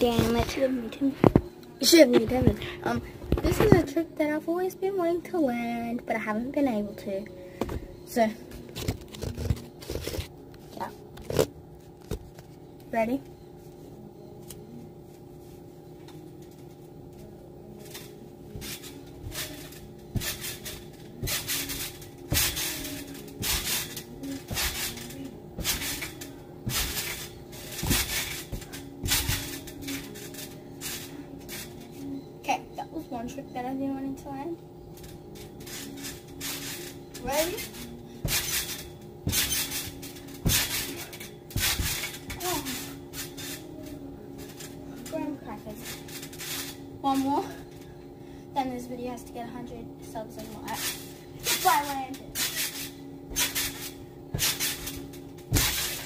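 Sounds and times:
trampoline bouncing thumps: 0.0s - 4.1s, 17.8s - 47.8s, 48.6s - 56.0s.

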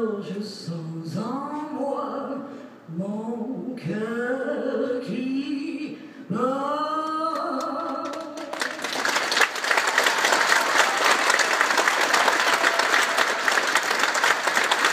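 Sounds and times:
audience applause: 8.1s - 14.9s.

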